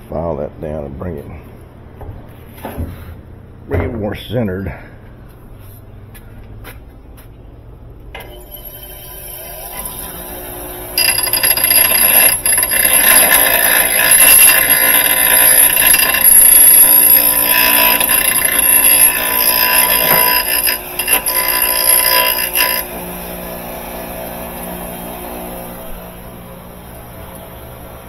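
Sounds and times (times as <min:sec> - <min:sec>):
bench grinder grinding metal: 0:08.2 - 0:26.2
low hum: 0:16.1 - 0:28.0.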